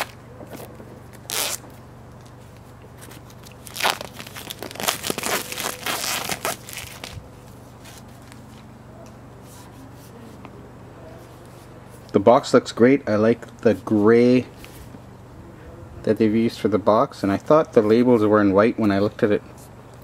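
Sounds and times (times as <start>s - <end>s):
plastic shrink-wrap tearing and crinkling: 1.1s - 1.6s, 3.2s - 7.2s.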